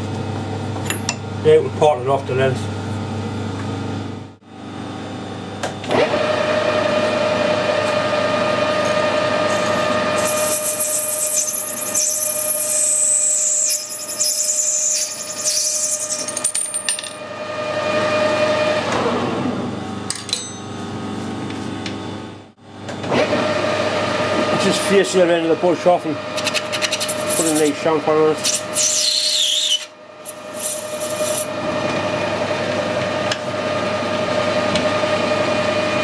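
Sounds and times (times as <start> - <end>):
metal lathe humming: 6.0 - 18.9.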